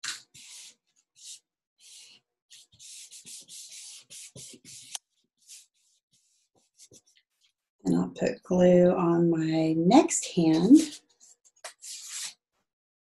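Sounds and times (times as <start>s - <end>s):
hands rubbing paper: 0.0s - 7.6s, 11.6s - 12.4s.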